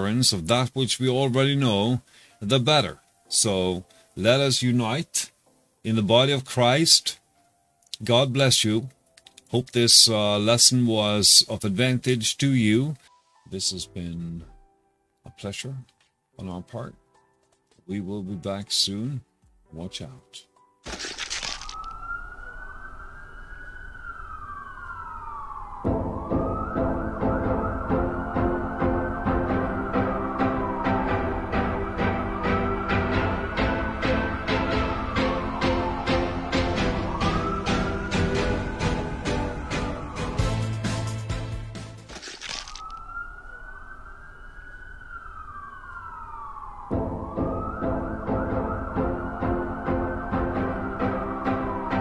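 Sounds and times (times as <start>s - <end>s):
long siren-like tone: 21.3s - 41.2s, 42.4s - 52.0s
pulsing music track: 23.8s - 42.4s, 44.6s - 52.0s.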